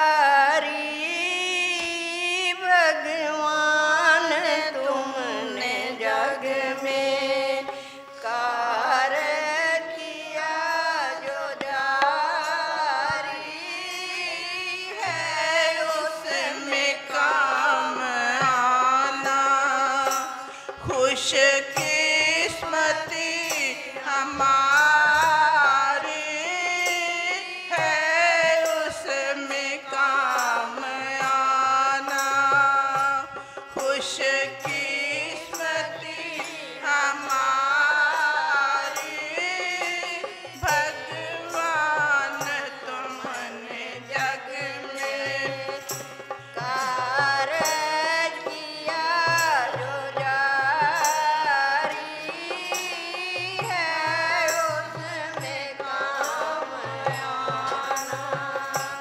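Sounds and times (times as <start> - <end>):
person singing devotional song: 0.0 - 59.0
instrumental accompaniment: 10.8 - 59.0.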